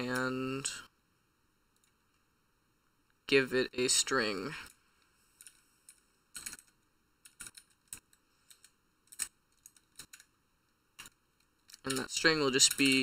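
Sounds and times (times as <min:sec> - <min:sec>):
computer keyboard typing: 0:05.4 - 0:10.4, 0:11.0 - 0:13.0.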